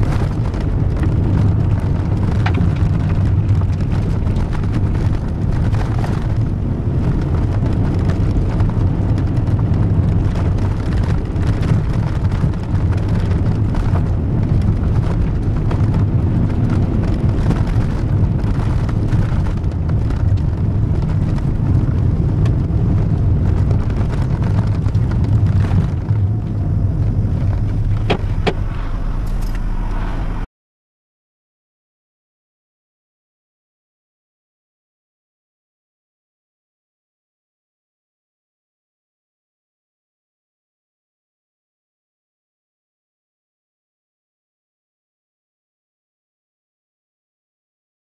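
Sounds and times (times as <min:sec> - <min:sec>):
tyre noise on gravel: 0:00.0 - 0:29.8
car engine drone: 0:00.0 - 0:30.5.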